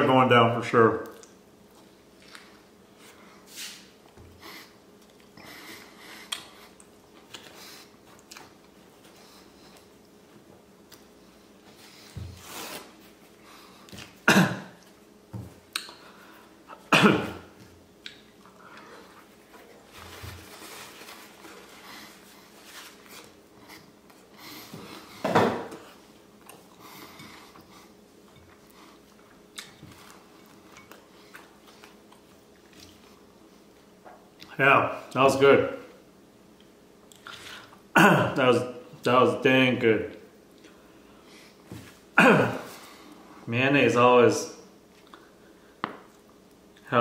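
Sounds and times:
man coughing: 14.2s - 14.8s, 16.8s - 17.5s, 37.9s - 38.4s, 42.2s - 42.8s.

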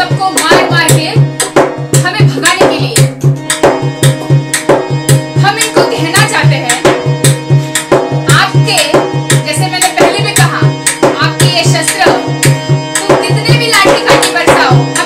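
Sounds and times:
woman singing: 0.0s - 1.3s, 8.3s - 12.3s, 13.0s - 15.0s
hand drum beating: 0.0s - 15.0s
harmonium chords: 0.0s - 15.0s.

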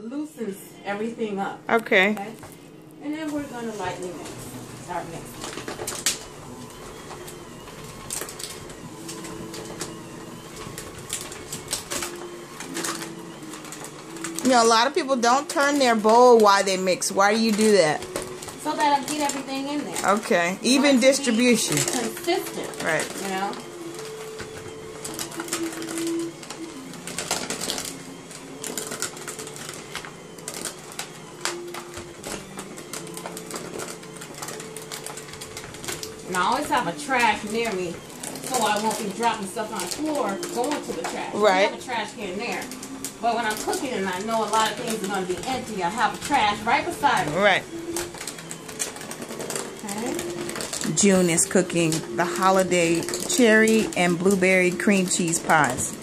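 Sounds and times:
electric hand mixer running: 0.0s - 56.0s
beaters clicking and knocking in bowl: 3.2s - 56.0s.

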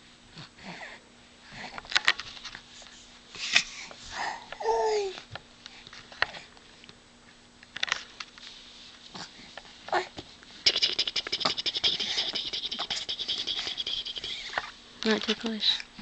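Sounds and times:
baby sucking fingers: 10.7s - 14.6s.

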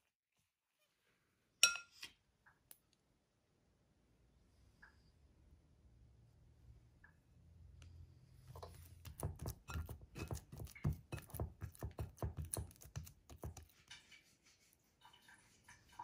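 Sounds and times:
hand kneading dough: 8.5s - 16.0s.

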